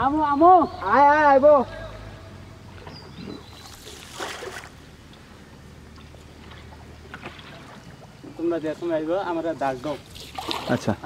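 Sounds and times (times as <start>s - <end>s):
boat engine drone: 0.0s - 11.0s
water washing along hull: 2.7s - 4.8s, 5.9s - 11.0s
rush of water: 2.8s - 4.8s, 6.4s - 11.0s.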